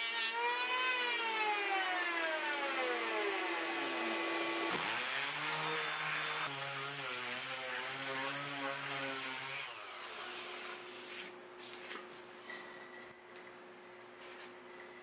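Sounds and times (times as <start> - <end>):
electric sander humming: 0.4 - 6.9.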